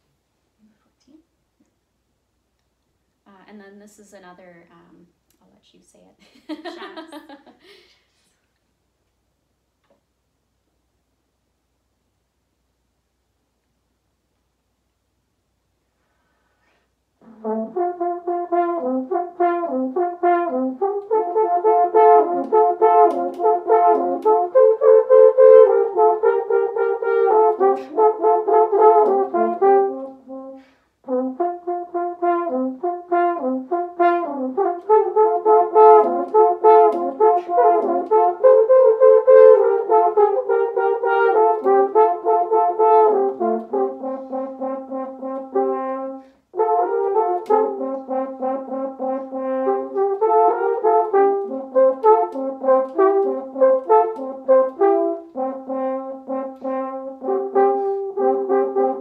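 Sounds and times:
french horns playing: 17.2 - 59.0.

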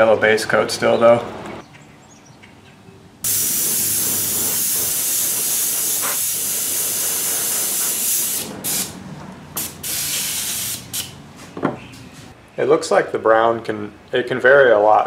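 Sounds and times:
airbrush spraying hiss: 3.2 - 9.0, 9.6 - 11.1.

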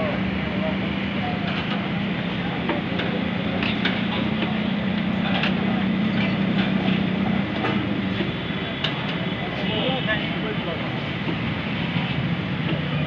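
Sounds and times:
street noise: 0.0 - 13.0
clicks and clinks at griddle: 3.0 - 4.2.

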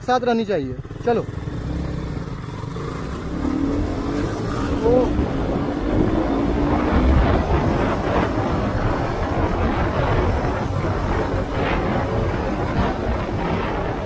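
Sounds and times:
motorcycle engine accelerating: 0.7 - 14.0
wind rumble on microphone: 3.0 - 14.0.

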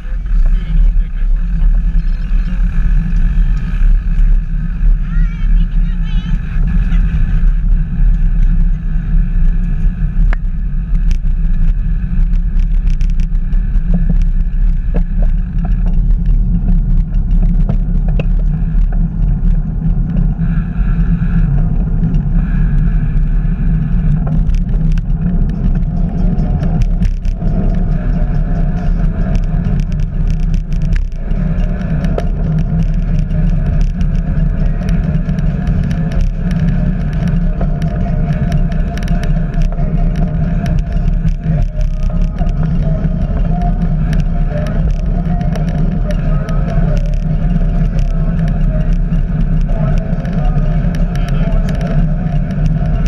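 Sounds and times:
bicycle clicks and rattles: 0.0 - 53.0
wind buffeting microphone: 0.0 - 53.0.

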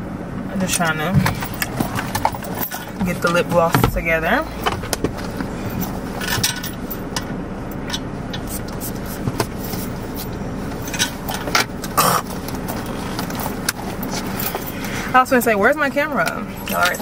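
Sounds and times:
car interior hum: 0.0 - 17.0.

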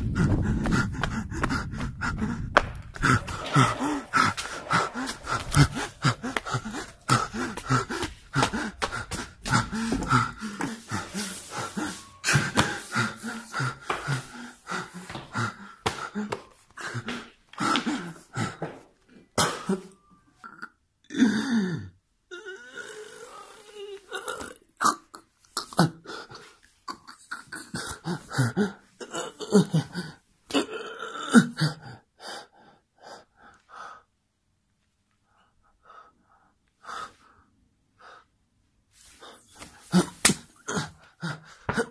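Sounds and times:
knocks and scuffs: 0.2 - 18.9.

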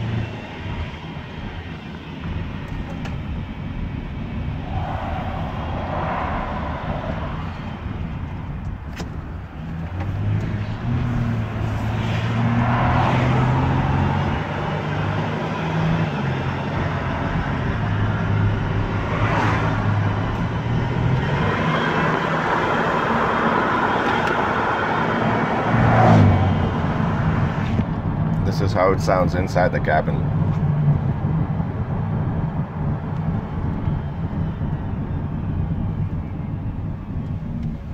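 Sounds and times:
steady drivetrain whine: 0.0 - 28.5, 30.1 - 37.9
car engine and road noise: 0.0 - 37.9.

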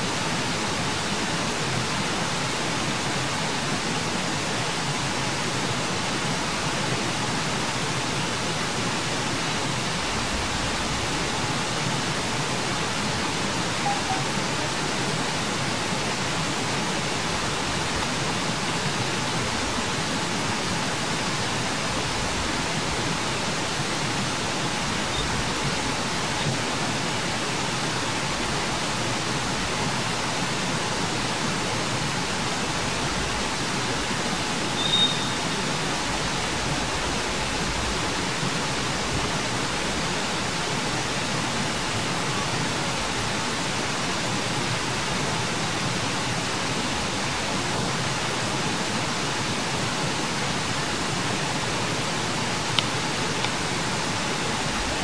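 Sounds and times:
steady background hiss: 0.0 - 55.0
brief high chirp: 34.8 - 35.6.

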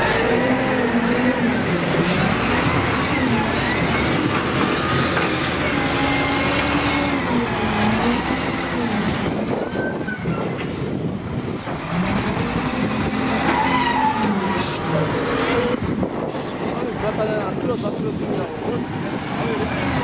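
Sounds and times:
diesel engine running under load: 0.0 - 13.6.

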